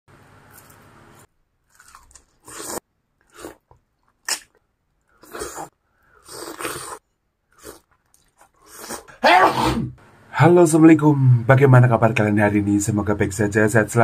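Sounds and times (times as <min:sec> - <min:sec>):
woman biting and chewing food: 0:01.6 - 0:09.2.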